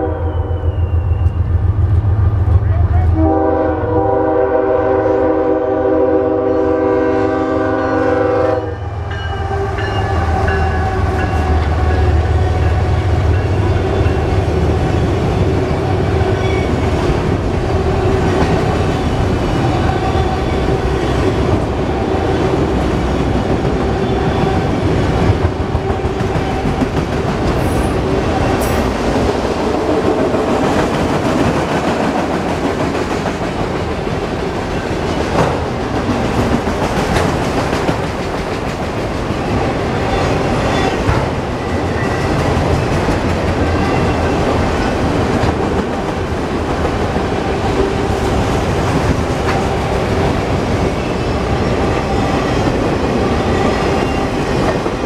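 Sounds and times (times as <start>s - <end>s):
locomotive air horn blast: 0.0s - 0.9s, 3.1s - 10.4s
train wheels clattering: 22.9s - 55.0s.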